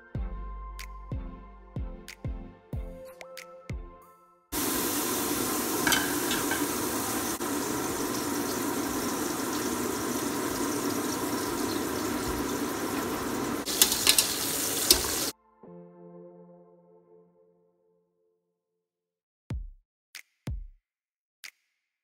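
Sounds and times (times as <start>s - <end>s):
oil sizzling in pot: 4.6s - 15.3s.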